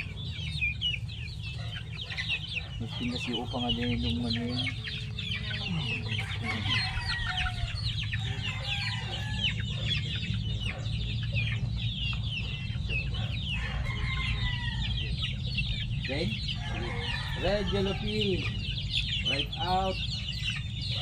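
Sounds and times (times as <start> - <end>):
young chickens peeping and clucking: 0.0 - 21.0.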